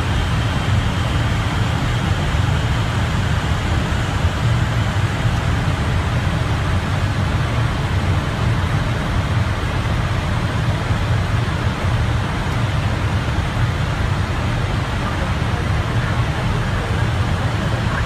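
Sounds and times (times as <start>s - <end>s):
rush of air in cockpit: 0.0s - 18.0s.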